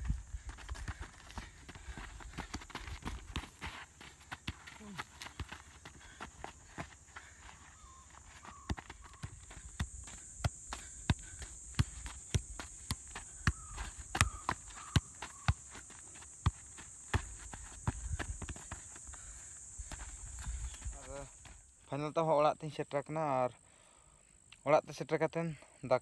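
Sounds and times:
foot kicking football: 0.0s - 21.6s
faint chirps: 6.8s - 16.0s, 17.1s - 22.1s.

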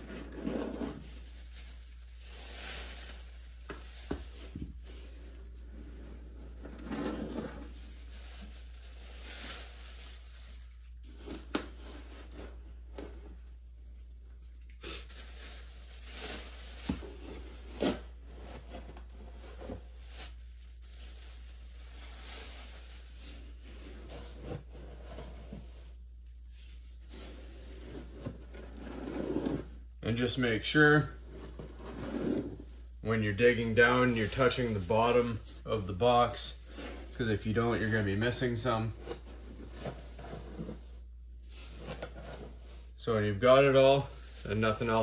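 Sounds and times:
plastic bag crinkling: 0.0s - 12.9s, 14.3s - 17.8s, 18.7s - 23.7s, 33.1s - 39.0s, 43.4s - 45.0s
scoop sifting cat litter: 0.0s - 13.8s, 14.8s - 45.0s.

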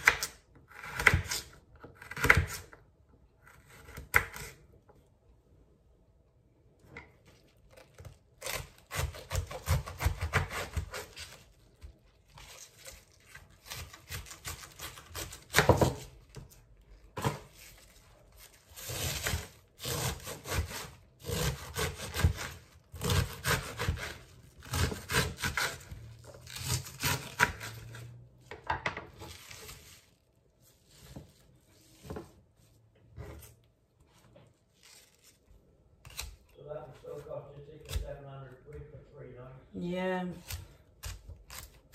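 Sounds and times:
knife cutting vegetables on board: 0.0s - 2.8s, 3.4s - 4.7s, 7.0s - 11.5s, 12.3s - 16.6s, 17.2s - 17.8s, 18.7s - 28.2s, 36.0s - 37.2s, 37.8s - 38.2s.

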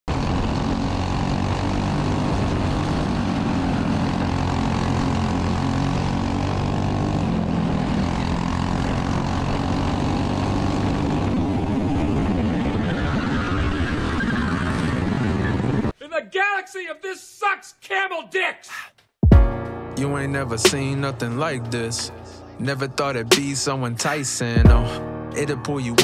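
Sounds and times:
go-kart engine at speed: 0.1s - 15.9s, 20.1s - 24.2s.

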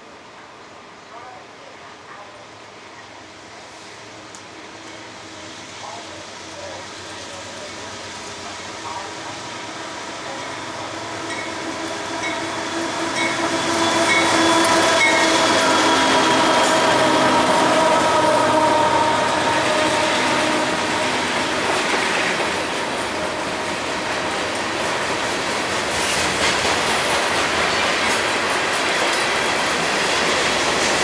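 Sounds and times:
diesel locomotive engines: 0.0s - 31.0s
freight cars rolling on rails: 2.5s - 31.0s
train bell ringing: 4.8s - 5.2s, 11.3s - 16.8s.

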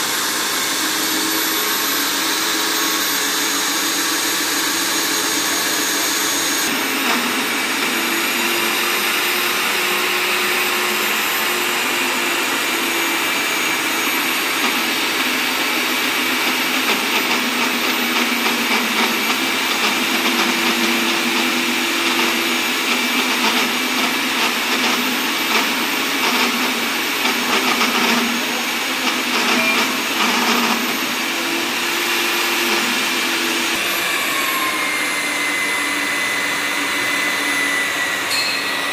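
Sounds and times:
core drill whining into concrete: 0.0s - 38.9s.

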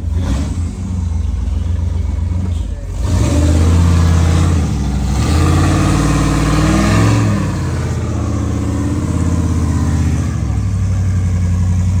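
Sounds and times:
buggy engine revving hard: 0.0s - 12.0s.

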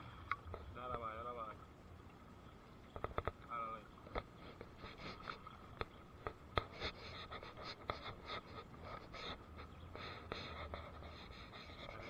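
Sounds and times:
sharp clicks and scratches: 5.8s - 9.7s.

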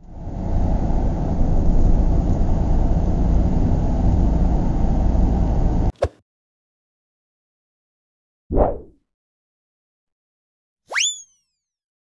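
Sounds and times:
bus engine drone: 0.0s - 5.9s.

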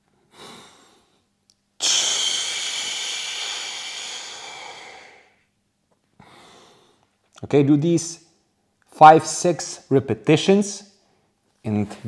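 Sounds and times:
man exhaling forcefully: 1.8s - 5.4s.

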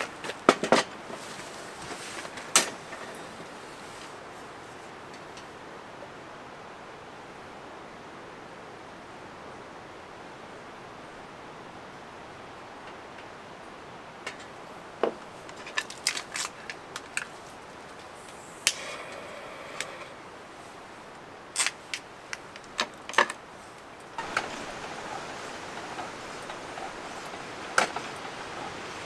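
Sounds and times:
steady hiss: 0.0s - 29.0s.

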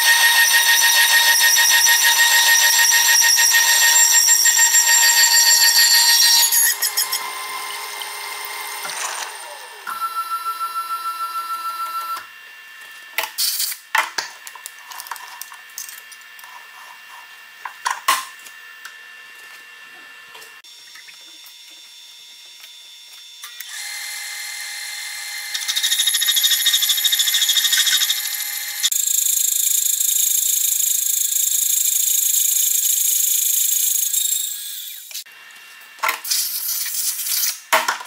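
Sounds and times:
saw cutting metal pulsing: 0.0s - 9.9s, 23.6s - 35.3s
milling machine saw whine: 0.0s - 12.3s, 20.7s - 35.2s.

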